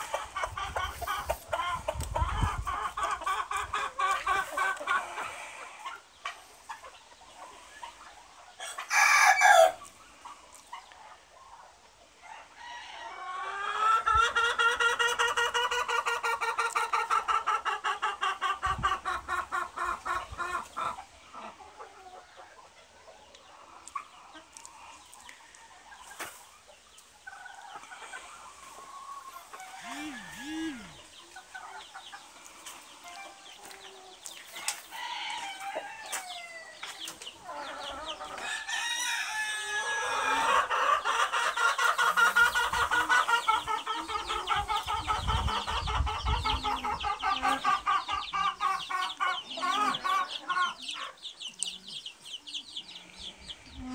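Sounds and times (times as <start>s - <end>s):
chickens clucking: 0.0s - 53.9s
rooster crowing: 8.9s - 9.8s, 29.6s - 31.0s.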